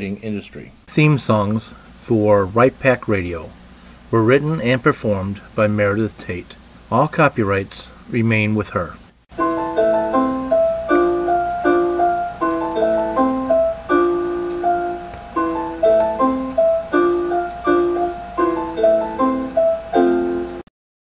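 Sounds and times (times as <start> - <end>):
piano music: 9.3 - 20.7.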